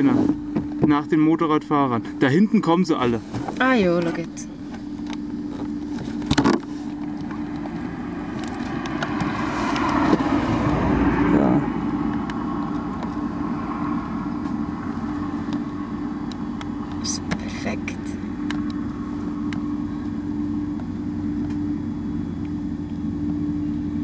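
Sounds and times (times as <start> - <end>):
steady low hum: 0.0 - 24.0
vehicle passing by: 7.9 - 16.0.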